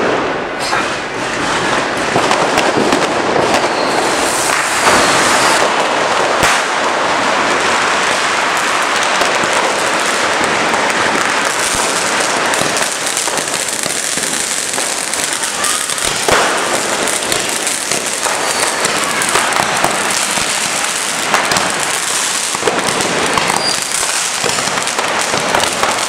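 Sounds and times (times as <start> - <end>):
firecrackers crackling: 0.0 - 26.0
loud firework bangs: 0.0 - 26.0.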